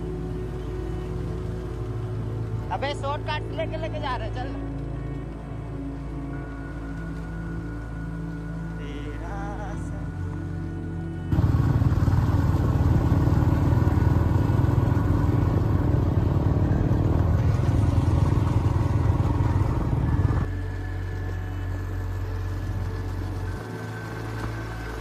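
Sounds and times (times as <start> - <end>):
motorcycle engines rumbling: 11.3 - 25.0.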